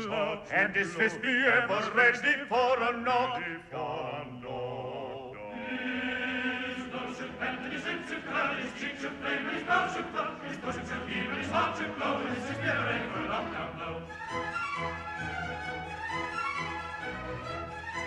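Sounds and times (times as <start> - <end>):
choir singing: 3.8 - 15.3.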